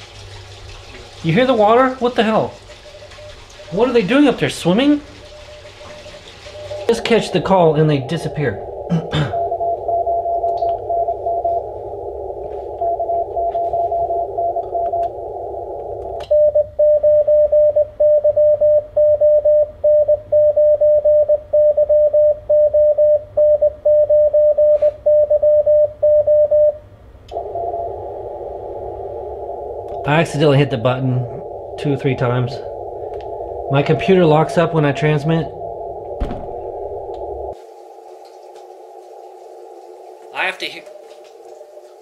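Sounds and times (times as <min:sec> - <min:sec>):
radio band static: 0:01.3 - 0:16.2, 0:27.3 - 0:37.6
faint morse code signal: 0:01.8 - 0:36.2
loud morse code sidetone: 0:02.9 - 0:11.8, 0:12.4 - 0:26.8.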